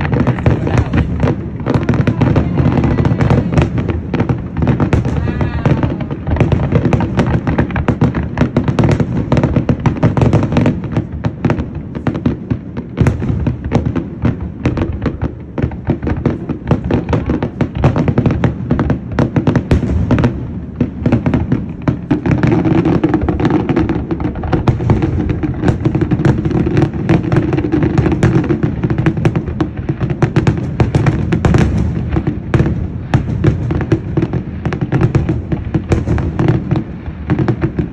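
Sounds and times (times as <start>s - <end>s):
fireworks bangs and crackle: 0.0s - 37.9s.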